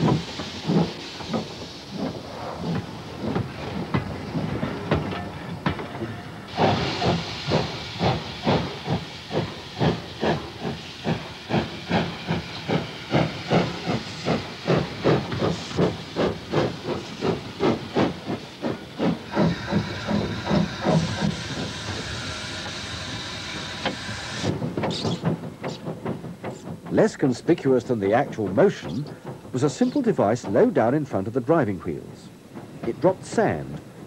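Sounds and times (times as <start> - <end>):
steam hissing: 0.0 - 34.0
steam locomotive exhaust chuffing: 0.0 - 34.0.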